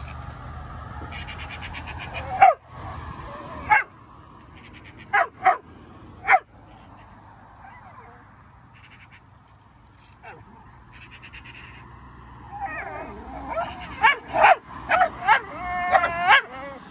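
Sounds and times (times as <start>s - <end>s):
small dog barking: 2.2s - 2.6s, 3.6s - 3.9s, 5.1s - 5.6s, 6.2s - 6.5s, 12.9s - 16.6s.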